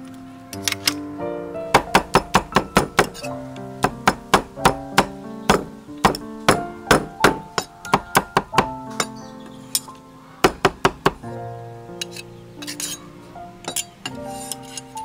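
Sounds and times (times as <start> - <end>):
background music: 0.0 - 15.0
cleaver chopping on wooden block: 1.8 - 8.7, 10.5 - 11.2.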